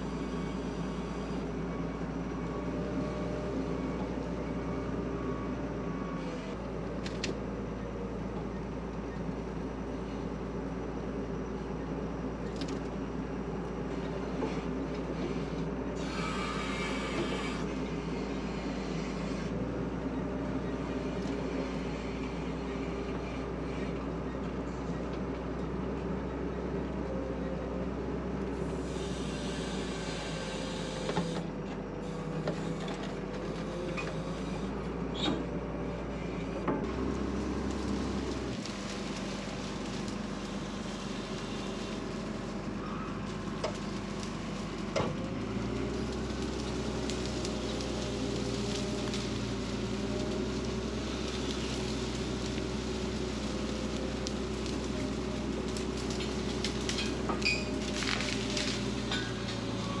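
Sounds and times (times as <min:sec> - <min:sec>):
diesel engine running: 0:00.0 - 1:00.0
branches cracking against machine: 0:36.9 - 1:00.0.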